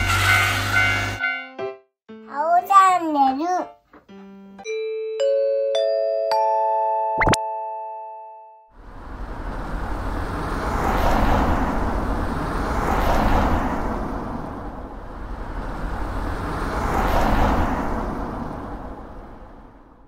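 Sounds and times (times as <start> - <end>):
cars driving past: 8.7 - 20.0.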